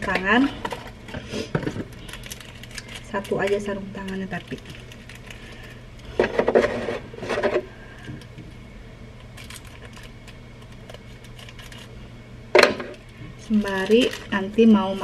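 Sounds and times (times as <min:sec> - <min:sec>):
plastic packet crinkling: 0:01.8 - 0:05.7, 0:09.3 - 0:12.0, 0:12.9 - 0:15.0.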